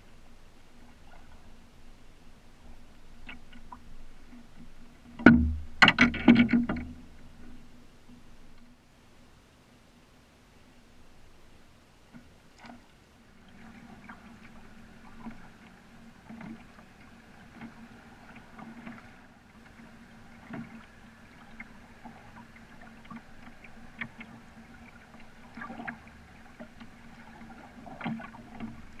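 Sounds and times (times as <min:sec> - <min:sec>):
small splashes and drips: 0:12.1 - 0:29.0
paddle stroking through water: 0:12.2 - 0:29.0.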